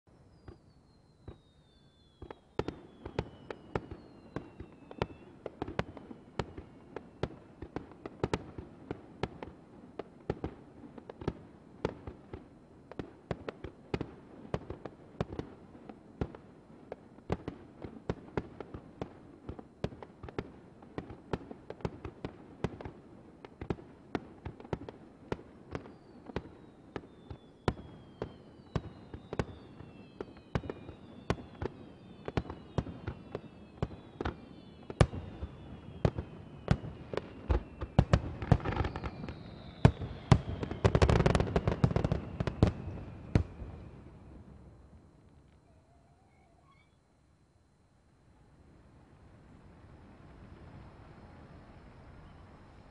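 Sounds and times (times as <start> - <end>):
fireworks bursting with sharp bangs: 0.1 - 45.6
fireworks whistles falling in pitch: 0.1 - 47.1.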